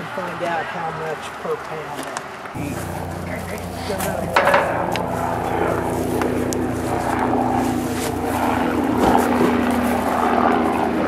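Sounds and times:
engine drone: 2.6s - 11.0s.

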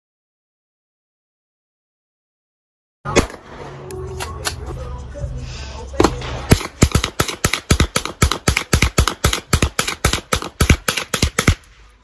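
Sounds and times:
pistol firing rapidly: 6.0s - 11.7s.

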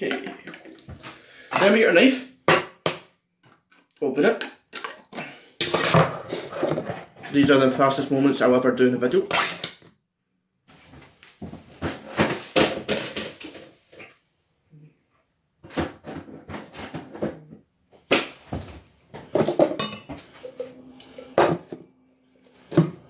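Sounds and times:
utensils and cupboard clattering: 4.7s - 7.6s, 11.8s - 13.8s, 19.2s - 21.8s.

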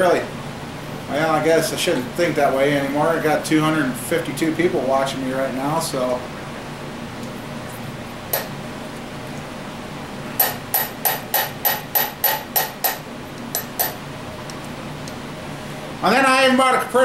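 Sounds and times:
sharp metal clicks: 10.4s - 15.2s.

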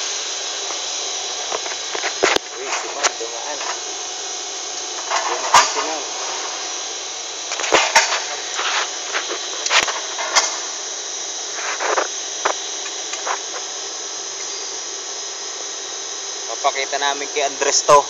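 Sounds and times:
steady factory hiss: 0.0s - 18.0s.

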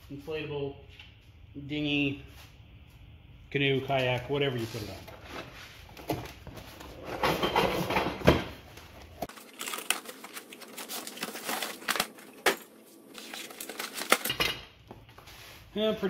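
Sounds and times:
cardboard rustling and tearing: 9.2s - 14.3s.

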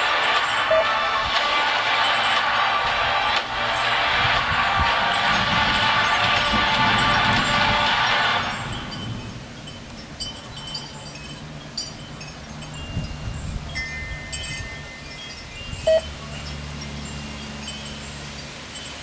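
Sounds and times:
wind chimes ringing: 0.0s - 19.0s.

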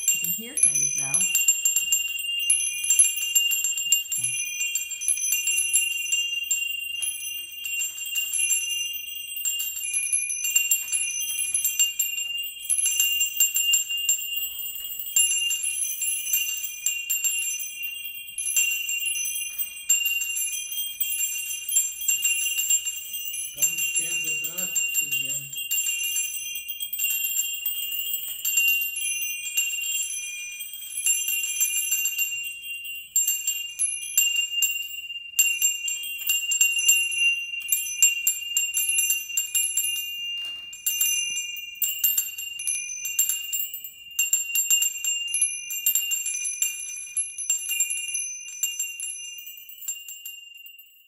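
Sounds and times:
bell ringing: 0.0s - 43.9s.

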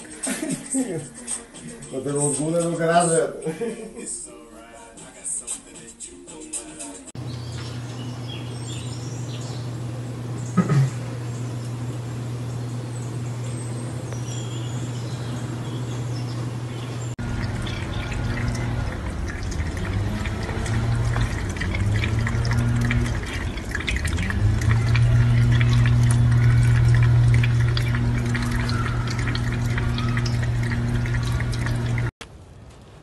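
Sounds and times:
steady low hum: 7.2s - 32.1s
water dripping: 7.2s - 32.1s
faucet running into steel sink: 17.2s - 32.1s.

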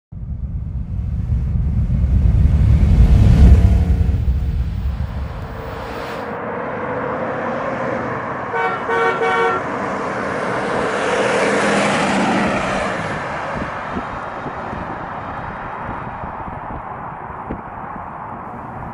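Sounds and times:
deep rumble: 0.1s - 6.4s
car driving past: 0.2s - 8.4s
car horn toots: 8.5s - 9.7s.

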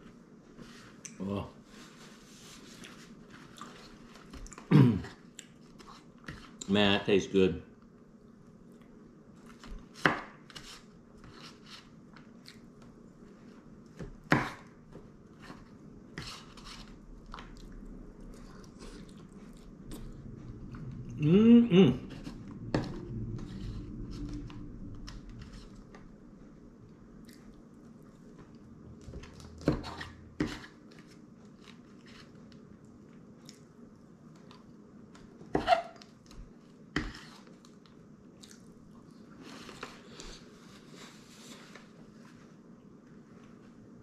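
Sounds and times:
chewing: 17.2s - 20.8s, 27.2s - 28.3s, 37.6s - 39.2s.

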